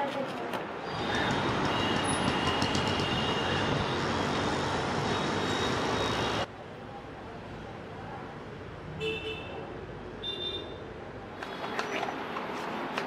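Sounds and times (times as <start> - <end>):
train wheels rumbling on rail: 0.9 - 5.0.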